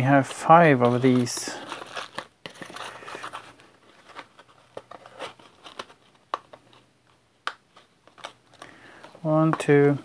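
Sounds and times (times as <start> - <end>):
cardboard boxes being handled: 0.0 - 6.6
plastic packaging crinkling: 0.0 - 6.8.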